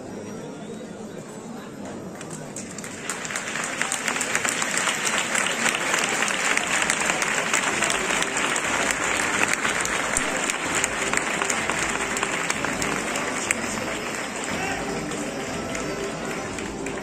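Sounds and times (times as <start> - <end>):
large crowd applauding: 2.2 - 17.0.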